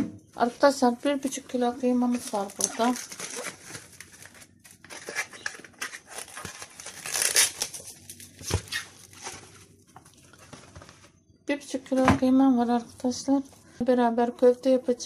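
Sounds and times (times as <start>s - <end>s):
cling film and tray crinkling: 0.5s - 11.1s.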